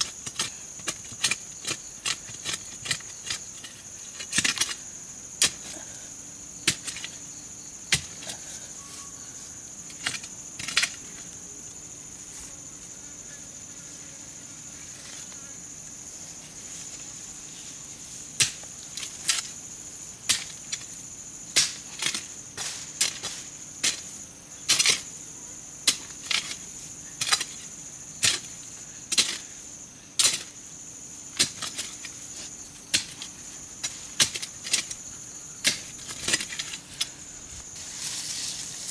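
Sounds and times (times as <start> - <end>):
insects droning: 0.0 - 38.9
hoe chopping into soil: 7.9 - 8.4, 21.6 - 24.1, 31.4 - 35.0.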